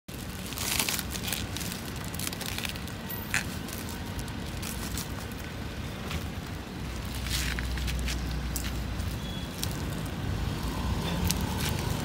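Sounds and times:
plastic wrapping crinkling: 0.1s - 5.5s.

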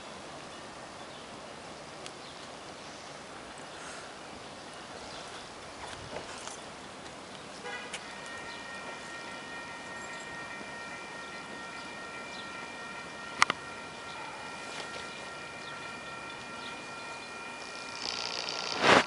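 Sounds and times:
approaching train: 3.2s - 19.0s
railroad crossing bell ringing: 7.5s - 19.0s.

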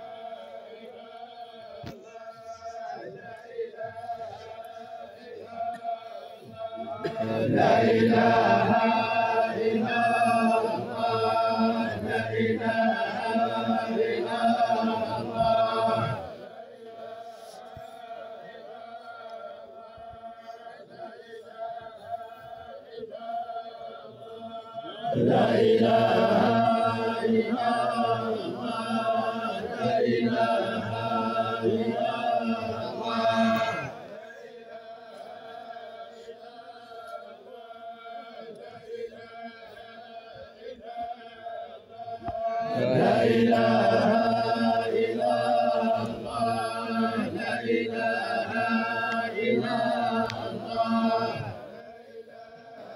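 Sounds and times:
men chanting in unison: 0.0s - 52.9s.

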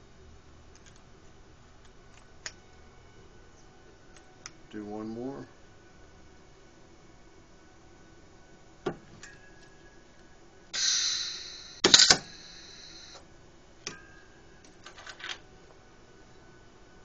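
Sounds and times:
shielding gas hissing: 10.7s - 13.2s
welding arc crackle: 10.8s - 13.2s.

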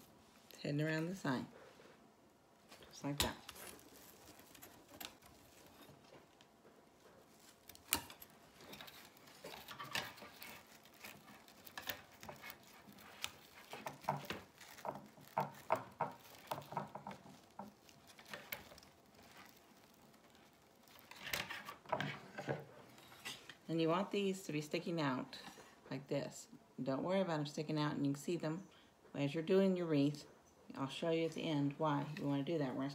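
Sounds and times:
mesh rustling with light ticks: 2.6s - 22.2s.

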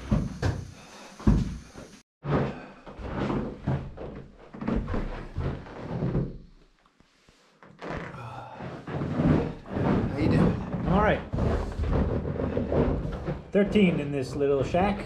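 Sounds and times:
thuds and knocks: 0.0s - 6.4s, 8.8s - 14.1s.

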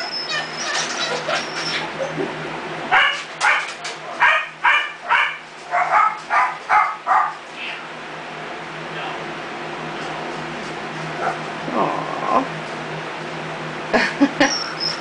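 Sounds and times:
puppy yelping and squealing: 0.0s - 2.3s, 14.4s - 15.0s.

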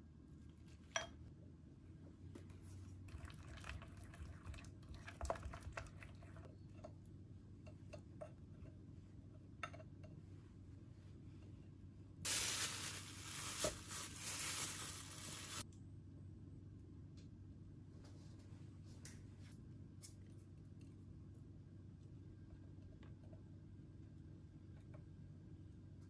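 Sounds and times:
plastic glove crinkling: 12.3s - 15.6s.

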